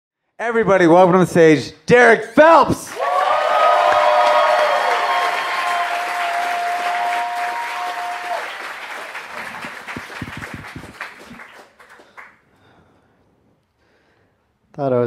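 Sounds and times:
audience applauding: 0:02.9 - 0:12.4.

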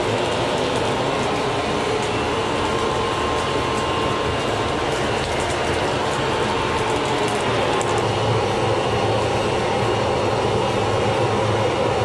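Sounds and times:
fire crackling: 0:00.0 - 0:10.9
furnace blower roaring: 0:00.0 - 0:12.0.

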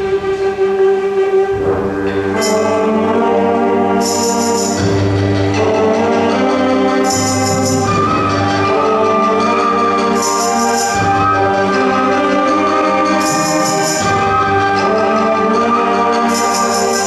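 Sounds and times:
symphonic band playing: 0:00.0 - 0:17.0
bright high shimmer: 0:04.0 - 0:05.0.

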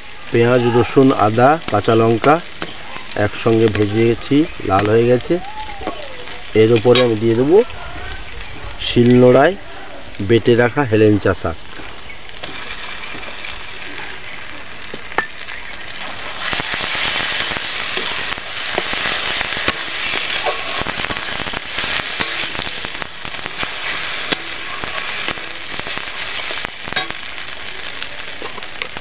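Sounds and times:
oil sizzling in a pan: 0:00.0 - 0:29.0
metal spatula scraping and clicking: 0:01.7 - 0:02.8.

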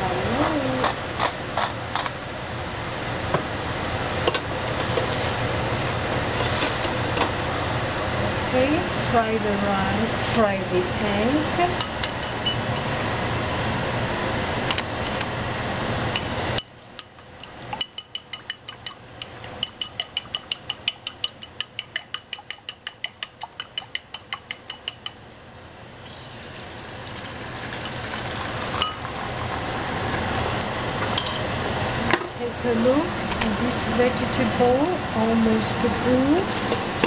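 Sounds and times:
eggs beaten in a bowl: 0:17.4 - 0:25.2.

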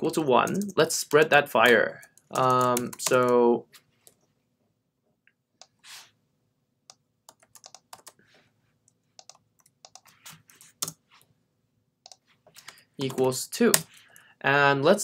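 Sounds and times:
computer keyboard typing: 0:00.4 - 0:03.4, 0:06.9 - 0:08.2, 0:09.1 - 0:11.0, 0:12.0 - 0:14.2.

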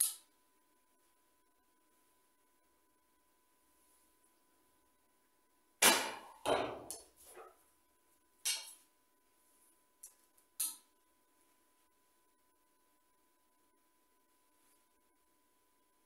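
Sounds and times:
arrow striking target: 0:05.8 - 0:06.8.

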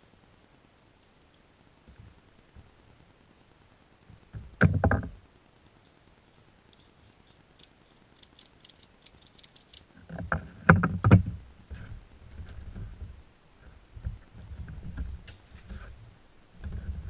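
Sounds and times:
metal strap hardware clinking: 0:06.7 - 0:09.9.

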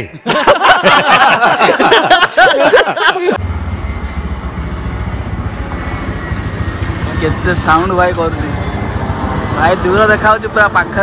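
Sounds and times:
vehicle engine idling: 0:03.4 - 0:11.0.

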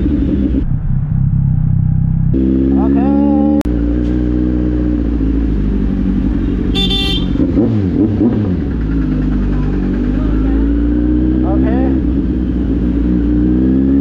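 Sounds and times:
motorcycle engine running: 0:00.0 - 0:14.0
vehicle horn toot: 0:06.7 - 0:07.6.

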